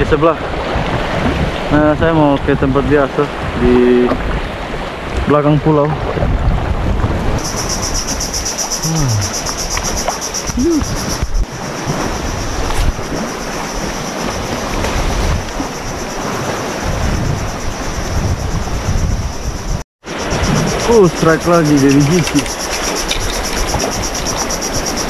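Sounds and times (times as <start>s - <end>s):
sea water washing on shore: 0.0s - 18.1s, 20.1s - 25.0s
wind buffeting microphone: 0.0s - 25.0s
high-pitched pulsing buzz: 7.4s - 14.6s.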